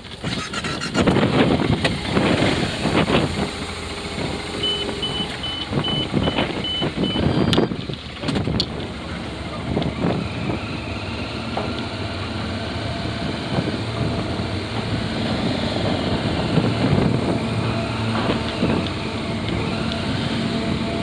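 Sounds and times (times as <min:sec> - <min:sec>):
motorcycle engine running: 0:00.0 - 0:21.0
wind noise on microphone: 0:00.0 - 0:21.0.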